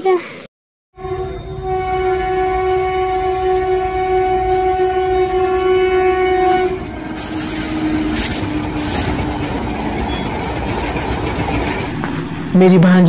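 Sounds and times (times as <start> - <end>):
train horn blast: 1.0 - 10.3
passing train rumble and clatter: 1.0 - 13.0.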